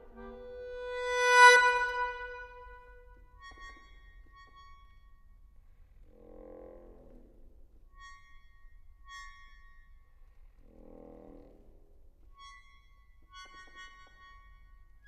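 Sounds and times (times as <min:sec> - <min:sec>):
soft accordion chords: 0:00.0 - 0:02.8
soft hazy low sound: 0:00.0 - 0:02.9.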